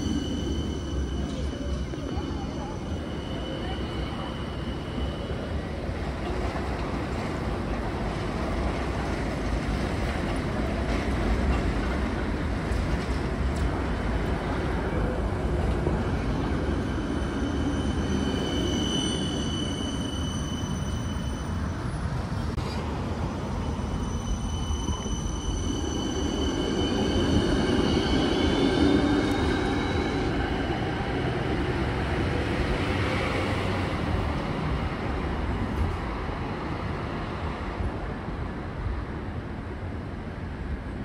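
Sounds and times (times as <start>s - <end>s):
high wheel squeal: 0.0s - 5.9s, 16.1s - 30.6s
tram wheels rumbling on rail: 0.0s - 41.0s.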